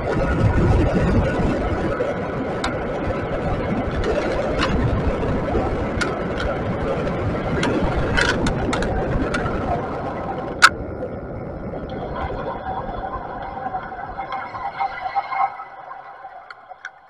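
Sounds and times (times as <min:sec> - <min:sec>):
wind and road rumble: 0:00.0 - 0:17.0
bike clicks and knocks: 0:03.9 - 0:09.6.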